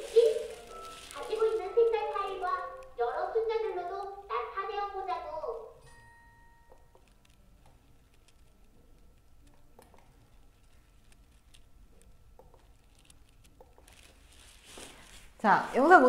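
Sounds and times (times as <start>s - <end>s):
computer mouse and keyboard clicks: 6.7s - 14.0s.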